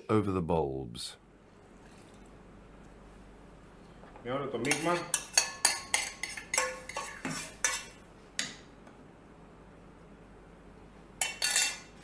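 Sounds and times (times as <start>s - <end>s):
spoon scraping saucepan: 4.6s - 8.0s, 11.2s - 12.0s.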